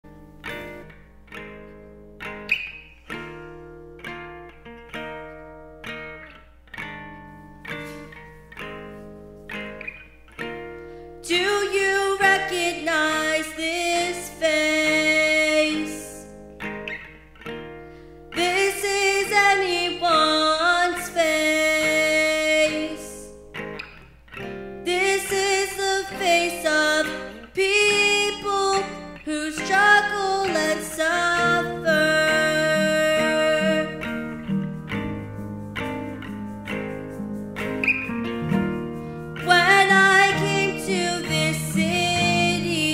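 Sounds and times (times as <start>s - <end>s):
plucked guitar: 0.0s - 42.9s
person singing: 11.3s - 16.3s, 18.4s - 23.4s, 24.8s - 34.8s, 38.4s - 42.9s.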